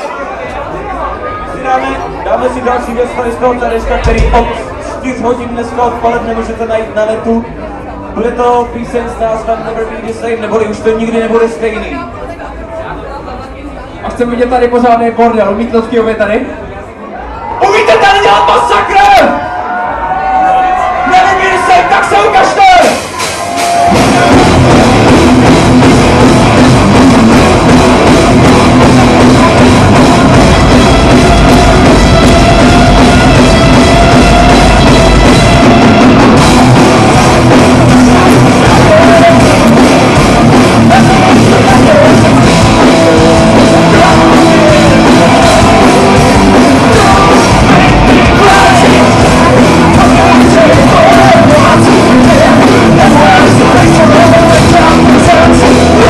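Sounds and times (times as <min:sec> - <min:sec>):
rock band playing live: 0:17.4 - 0:56.0
person singing: 0:37.9 - 0:56.0.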